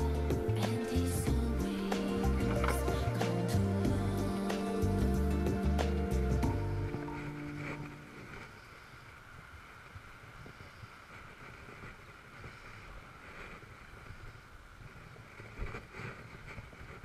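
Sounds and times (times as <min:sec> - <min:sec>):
background music: 0:00.0 - 0:08.4
wind rumbling on microphone: 0:00.0 - 0:17.0.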